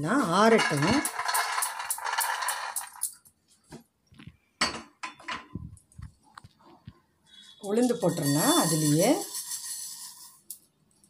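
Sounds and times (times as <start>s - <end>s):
peanuts pouring onto steel plate: 0.4s - 3.1s, 7.9s - 10.6s.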